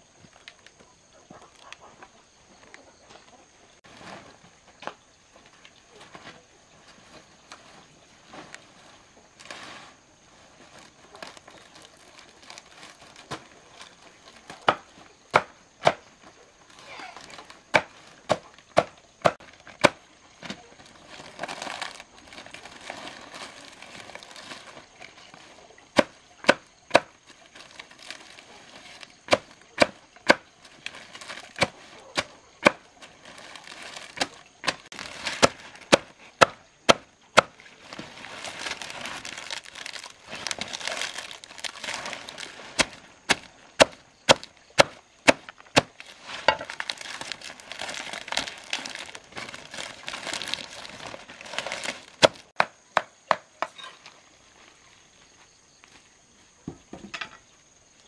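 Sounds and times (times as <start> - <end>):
faint rustling: 30.6 - 35.9, 37.7 - 43.7, 45.9 - 52.5.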